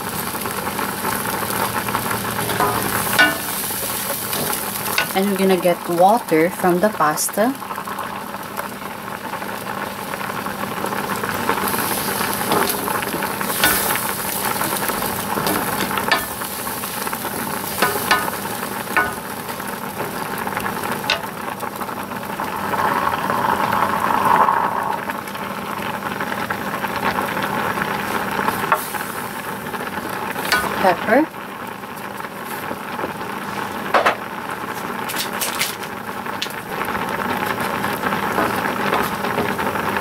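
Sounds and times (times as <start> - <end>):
sauce bubbling and sizzling: 0.0 - 40.0
wooden spoon knocking on pan: 2.5 - 3.6, 17.8 - 19.3, 33.9 - 34.2.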